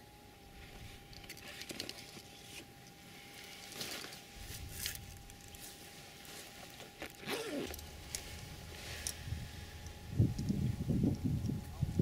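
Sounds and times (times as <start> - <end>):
fabric bag and gear rustling: 3.2 - 9.8.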